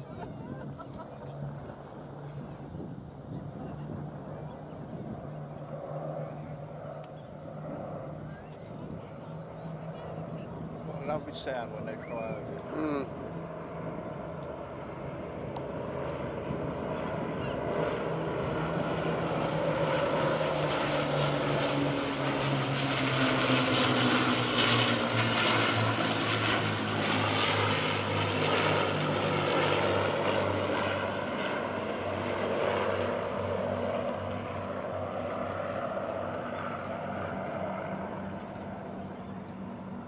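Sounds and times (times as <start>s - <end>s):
propeller aircraft droning overhead: 0.0s - 40.0s.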